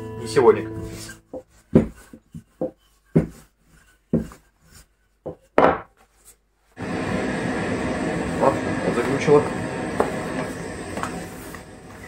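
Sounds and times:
rolling pin knocking on table: 1.3s - 3.4s, 5.2s - 5.9s.

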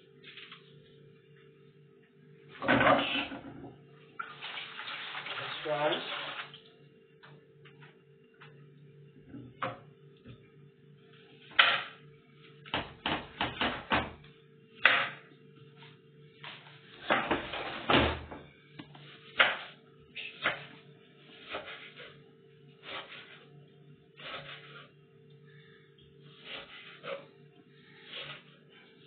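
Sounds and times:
knife cutting onion on wooden board: 19.0s - 22.2s, 22.8s - 23.5s, 24.2s - 24.9s, 26.3s - 27.3s, 28.0s - 28.6s.

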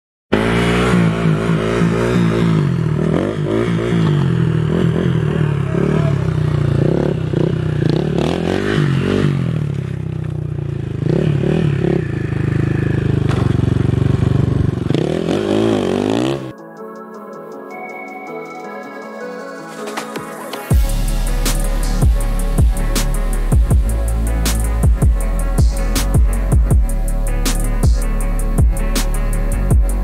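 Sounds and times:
motorcycle engine revving: 0.3s - 16.6s, 20.7s - 30.0s.

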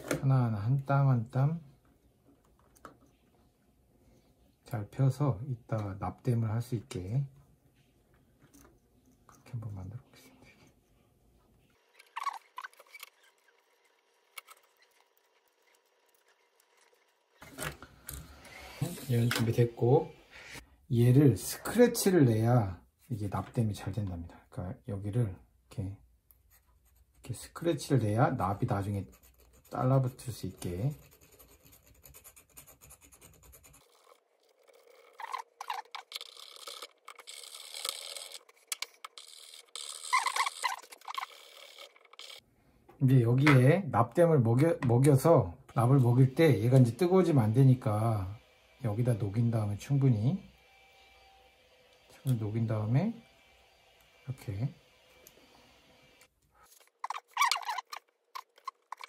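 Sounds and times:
nippers scratching metal cap: 11.9s - 17.6s, 29.0s - 42.4s, 56.7s - 59.0s.

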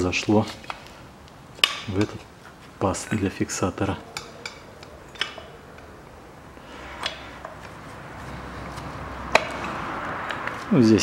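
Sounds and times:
soft rustle: 0.0s - 1.1s, 2.1s - 3.2s.

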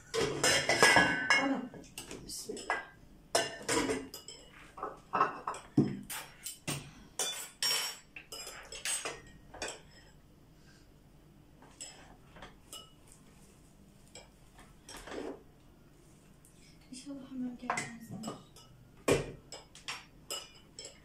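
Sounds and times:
pots and spoon clinking: 0.0s - 10.2s, 11.6s - 13.3s, 14.0s - 15.4s, 17.6s - 21.0s.

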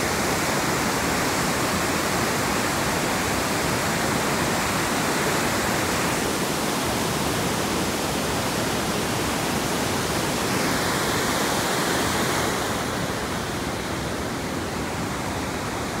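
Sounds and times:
waterfall rushing: 0.0s - 16.0s.

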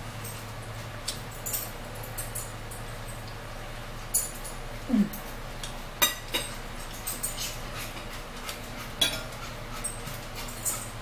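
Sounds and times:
fork clinking against a plate: 5.6s - 11.0s.

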